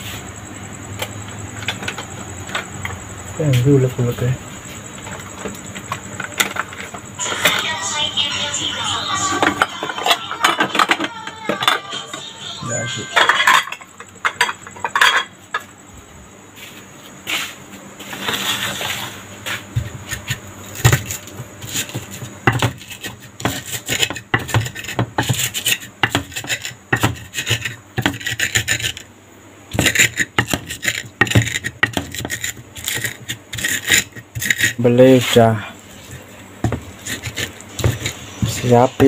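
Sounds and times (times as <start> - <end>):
stone pestle grinding in clay mortar: 19.8 - 29.1, 29.7 - 39.0.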